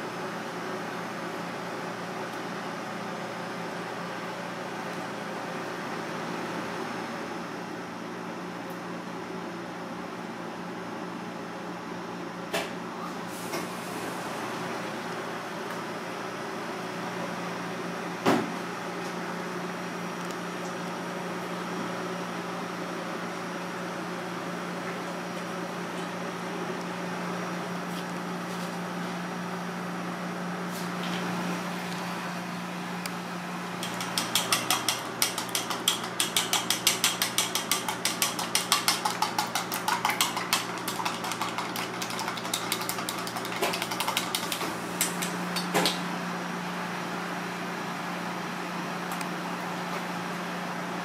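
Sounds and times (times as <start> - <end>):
kitchen equipment hum and hiss: 0.0 - 51.0
chopsticks beating eggs in metal bowl: 33.8 - 45.3.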